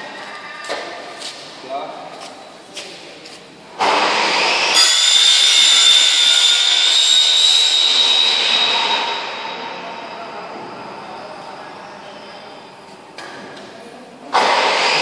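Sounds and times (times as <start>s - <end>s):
high whistle: 4.8s - 11.4s.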